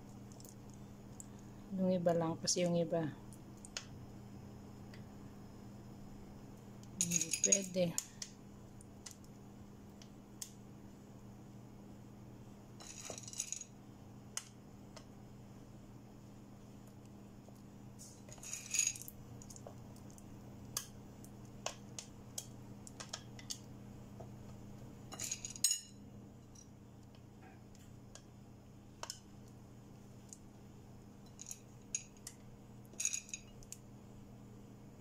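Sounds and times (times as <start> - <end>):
faint low hum: 0.0 - 35.0
chocolate chips clinking: 7.0 - 7.8, 32.9 - 33.7.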